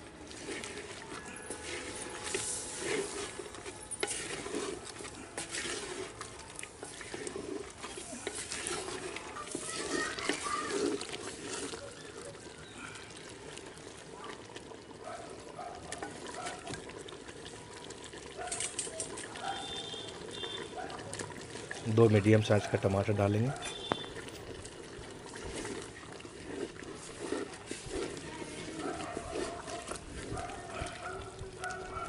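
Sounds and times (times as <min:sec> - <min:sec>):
wet sloshing of liquid: 0:00.0 - 0:32.0
spatula scraping clay pot: 0:00.1 - 0:13.1, 0:21.6 - 0:32.0.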